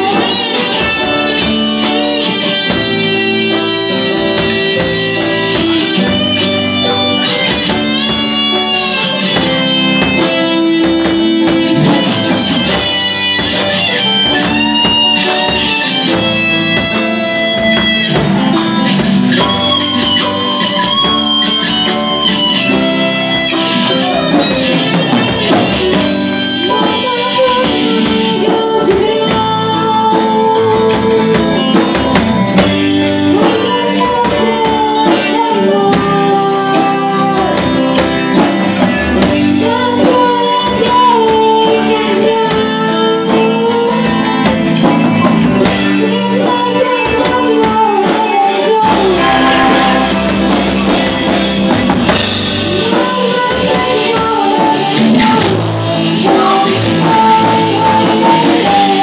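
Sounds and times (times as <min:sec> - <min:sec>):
drum-kit beat: 0:00.0 - 0:41.2, 0:47.3 - 0:59.0
electric guitar lead line: 0:00.0 - 0:59.0
live rock band playing: 0:00.0 - 0:59.0.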